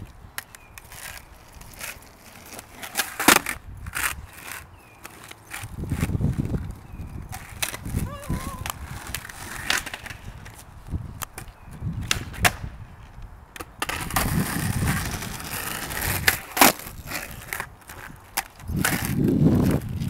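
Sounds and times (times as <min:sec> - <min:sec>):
skateboard wheels rolling on asphalt: 0:00.0 - 0:20.0
skateboard deck clacking on pavement: 0:11.2 - 0:12.8, 0:13.5 - 0:19.2.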